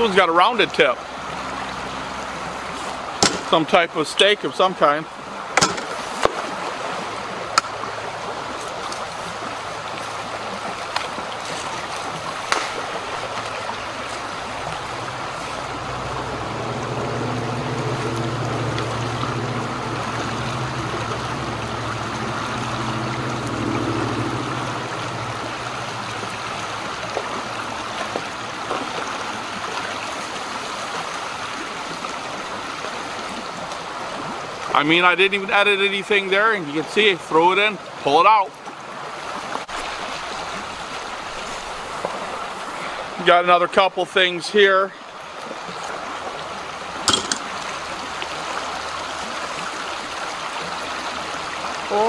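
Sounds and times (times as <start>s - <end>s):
creek running over riffle: 0.0s - 52.0s
low drone: 14.3s - 27.8s.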